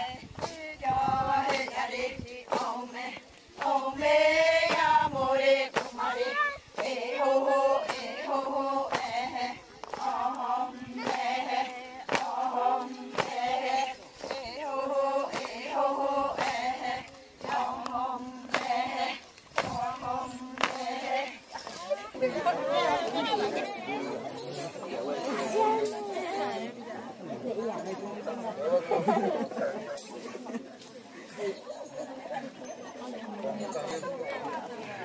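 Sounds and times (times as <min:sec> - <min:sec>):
women chanting in unison: 0:00.0 - 0:24.2, 0:25.1 - 0:27.2.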